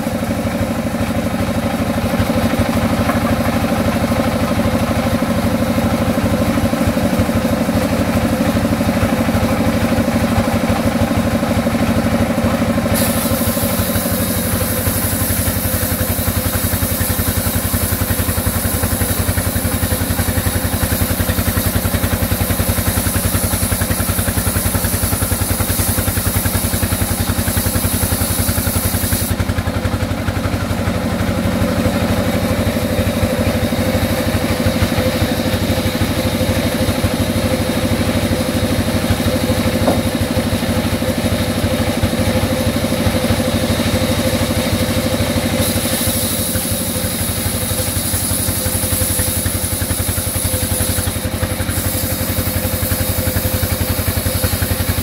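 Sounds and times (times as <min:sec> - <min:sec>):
band sawmill cutting wood: 0:00.0 - 0:55.0.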